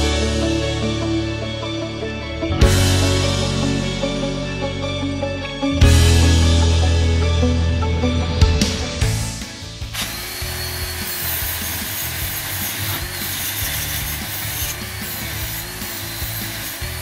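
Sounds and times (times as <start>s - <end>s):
angle grinder grinding: 9.8s - 17.0s.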